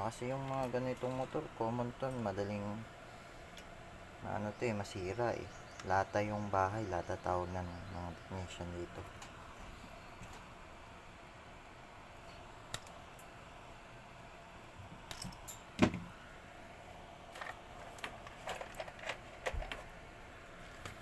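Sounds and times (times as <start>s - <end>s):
clinks of pliers and metal parts: 15.1s - 15.7s.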